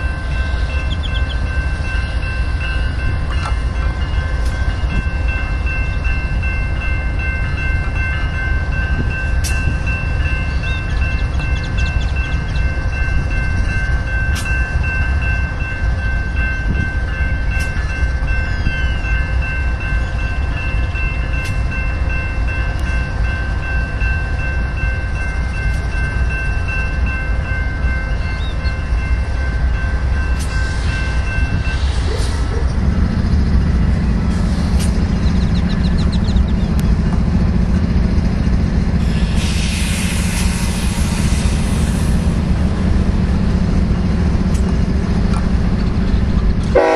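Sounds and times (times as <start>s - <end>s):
train wheels rumbling on rail: 0.0s - 46.9s
road vehicle engine hum: 32.0s - 40.0s.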